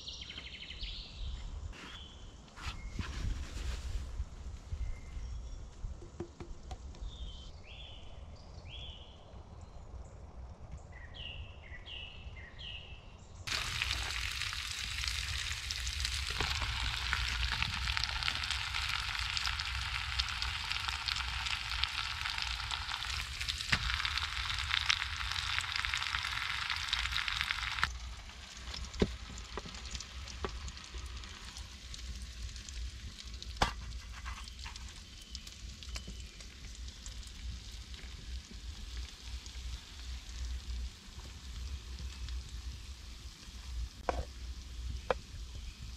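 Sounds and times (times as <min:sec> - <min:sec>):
food sizzling in a pan: 0:13.5 - 0:36.4
small birds chirping: 0:34.4 - 0:37.3.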